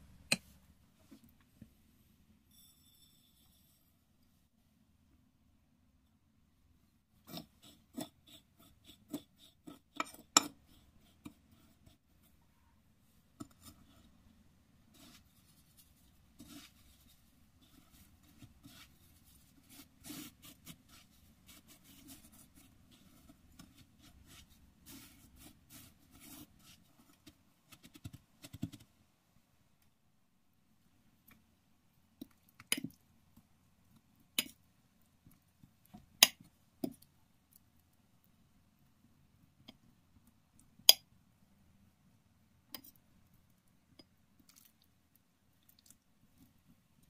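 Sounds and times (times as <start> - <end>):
crumbs scratching against a plate: 7.2 - 12.5, 13.3 - 14.3, 14.9 - 28.9.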